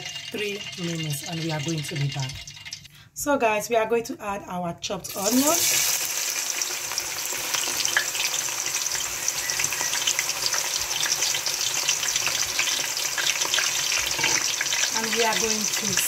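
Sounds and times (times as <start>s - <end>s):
onions sizzling in oil: 0.0s - 2.9s, 5.0s - 16.0s.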